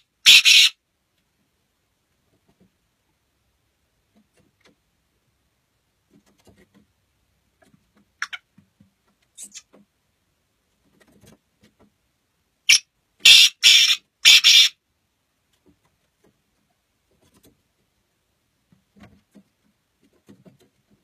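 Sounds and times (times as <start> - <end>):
bird harsh rasping call: 0.0 - 0.8, 12.7 - 14.8.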